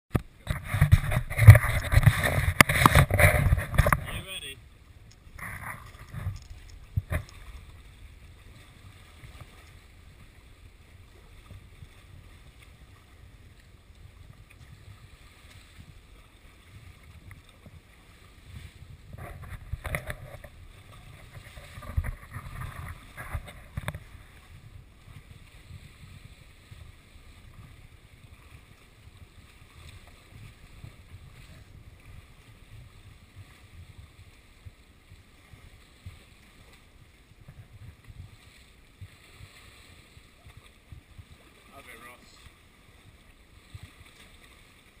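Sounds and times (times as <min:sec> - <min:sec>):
sea water lapping and sloshing: 0:00.1 - 0:45.0
water splashing: 0:00.1 - 0:45.0.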